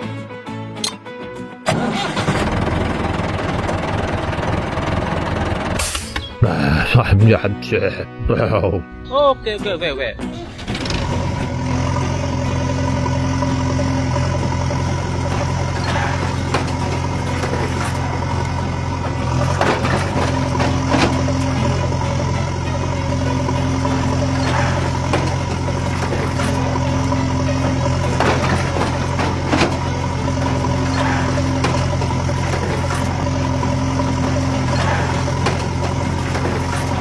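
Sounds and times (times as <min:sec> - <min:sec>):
heavy engine idling: 0:01.7 - 0:06.2, 0:10.4 - 0:37.0
higher hum: 0:10.2 - 0:37.0.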